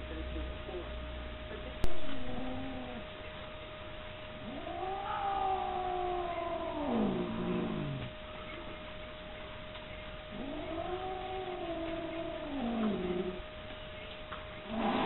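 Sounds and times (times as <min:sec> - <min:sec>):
cat yowling: 0:02.1 - 0:03.0, 0:04.4 - 0:08.1, 0:10.3 - 0:13.4.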